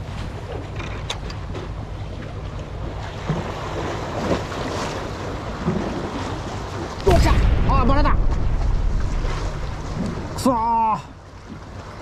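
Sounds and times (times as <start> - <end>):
sea waves washing: 1.4 - 12.0
wind buffeting microphone: 7.0 - 10.6.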